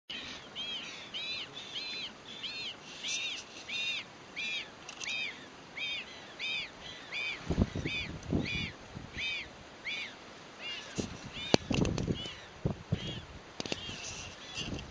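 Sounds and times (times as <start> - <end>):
low thumps and rustles: 11.0 - 13.0.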